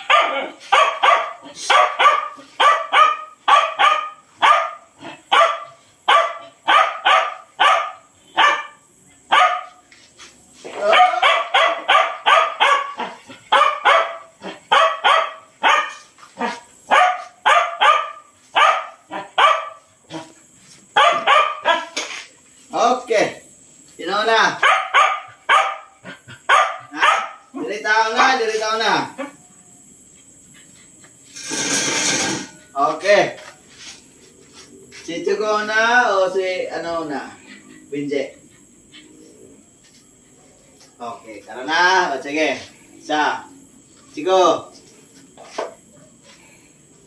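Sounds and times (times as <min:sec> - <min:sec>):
dog barking excitedly: 0:00.0 - 0:09.8, 0:10.8 - 0:22.0, 0:24.5 - 0:27.6.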